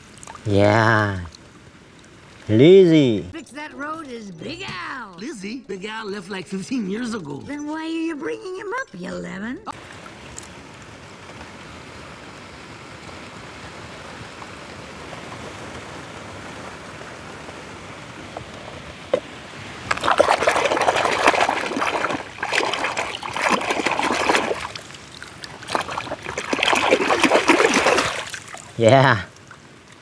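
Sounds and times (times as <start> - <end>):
hand splashing in muddy water: 19.9 - 28.8.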